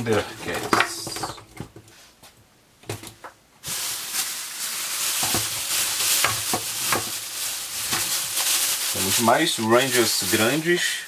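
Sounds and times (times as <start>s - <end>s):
packaging rustling and crackling: 3.6s - 10.8s.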